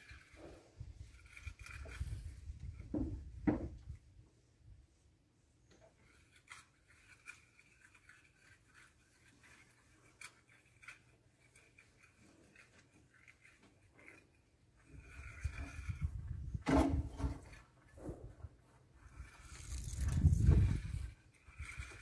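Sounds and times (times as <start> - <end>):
scratchy scrubbing on metal: 0.0 - 3.2, 5.7 - 22.0.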